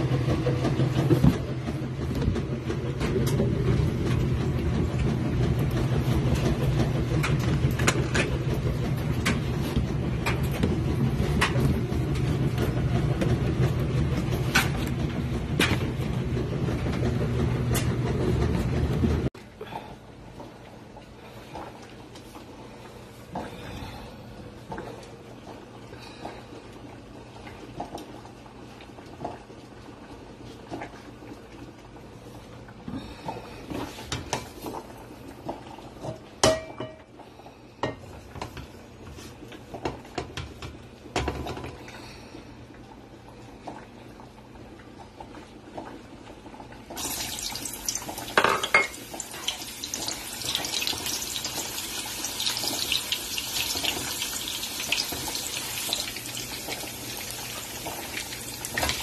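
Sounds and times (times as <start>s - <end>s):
pots knocking on stove top: 36.0s - 37.1s, 47.9s - 51.2s
meat sizzling in hot oil: 47.0s - 59.0s.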